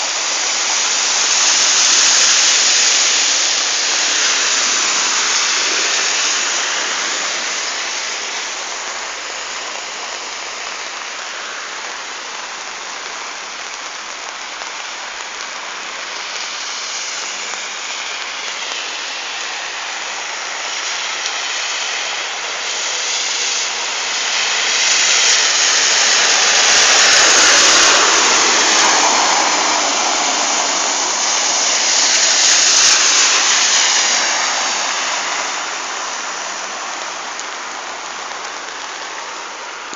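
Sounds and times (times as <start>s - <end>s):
heavy rain hissing: 0.0s - 39.9s
tyres swishing through water: 15.8s - 39.9s.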